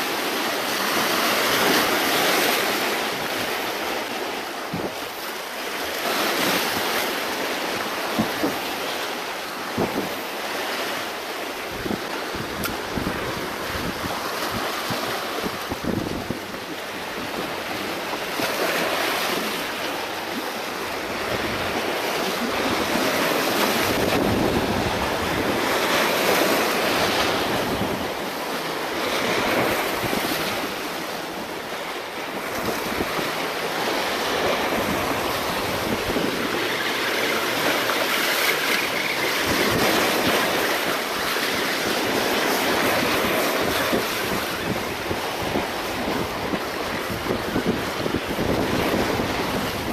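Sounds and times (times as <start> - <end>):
waves breaking over rocks: 0.0 - 49.9
wind buffeting microphone: 9.6 - 10.7, 11.6 - 49.9.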